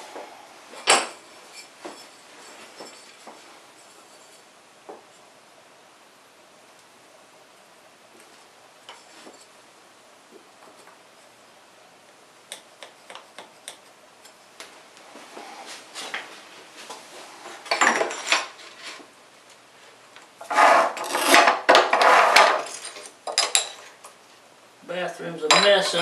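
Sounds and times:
tile scraping on metal cutter: 0:20.4 - 0:22.8.

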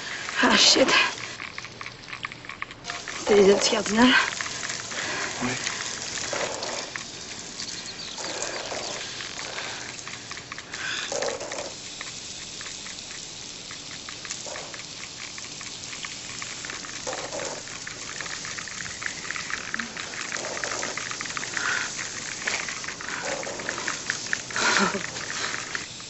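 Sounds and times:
lawn sprinkler water spraying: 0:00.0 - 0:26.0.

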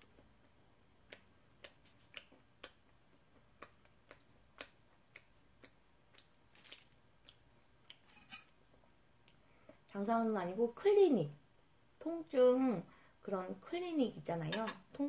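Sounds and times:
chewing bread clicks: 0:00.0 - 0:08.0.

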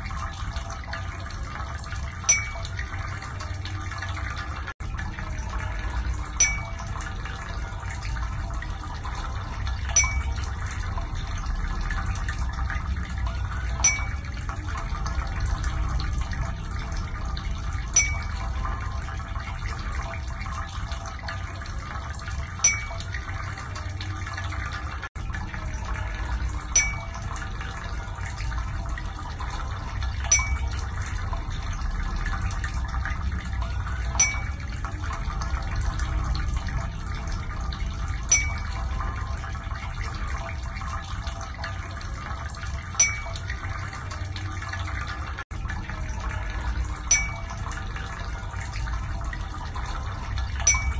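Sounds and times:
water drop plink: 0:00.0 - 0:04.6, 0:05.3 - 0:24.9, 0:25.7 - 0:45.4, 0:46.4 - 0:50.9
running water: 0:00.0 - 0:50.9.

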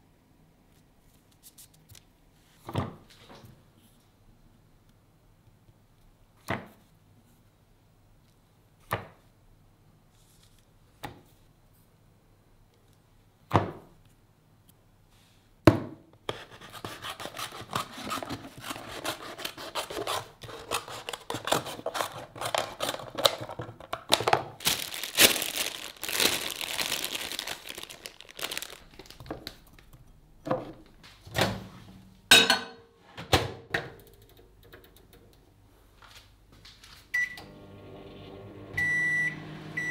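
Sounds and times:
packaging crinkling and tearing: 0:17.2 - 0:29.9.

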